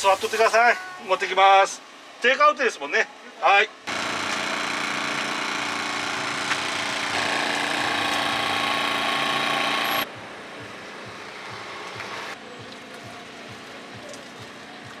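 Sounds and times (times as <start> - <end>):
motor running with hum: 3.9 - 10.1.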